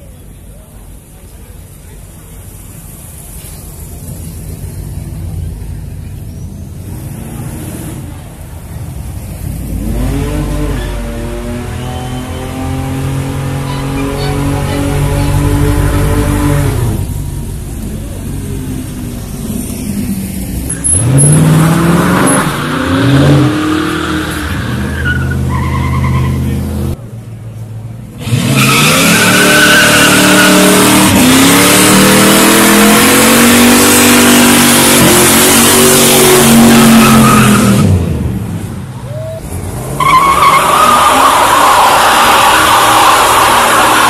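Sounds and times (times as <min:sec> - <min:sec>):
car engines revving hard: 0:02.4 - 0:27.0, 0:28.0 - 0:44.0
tyres squealing: 0:22.2 - 0:26.7, 0:39.0 - 0:44.0.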